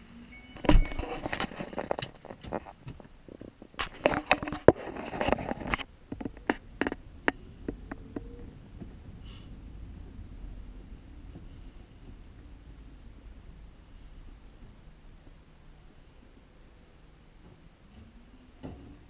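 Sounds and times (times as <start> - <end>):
low steady rumble: 0.0 - 19.0
sharp clicks and knocks: 0.6 - 9.2.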